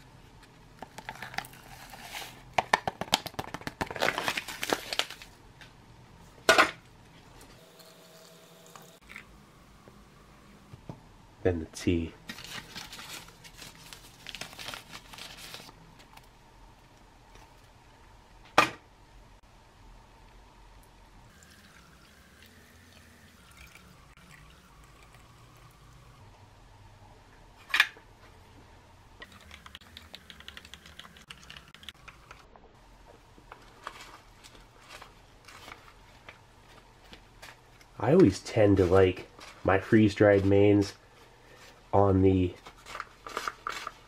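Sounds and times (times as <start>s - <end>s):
packet crinkling: 0.8s - 5.3s, 12.3s - 16.3s
foil pouch rustling: 12.3s - 15.8s
water pouring into a glass: 21.3s - 26.1s.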